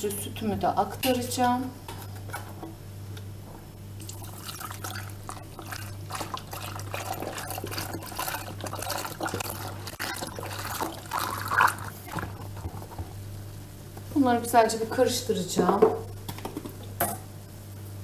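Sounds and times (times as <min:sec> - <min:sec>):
milk pouring and splashing into pot: 0:04.0 - 0:12.8.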